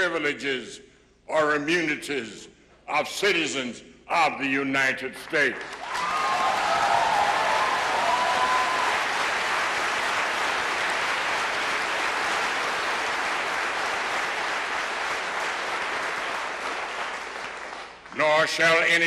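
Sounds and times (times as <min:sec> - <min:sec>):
audience applauding: 0:05.6 - 0:18.2.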